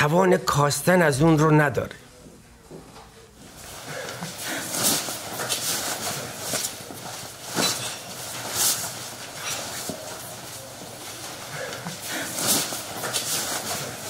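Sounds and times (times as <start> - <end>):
footsteps on a hard floor: 2.2 - 14.0
bedding rustling: 3.4 - 14.0.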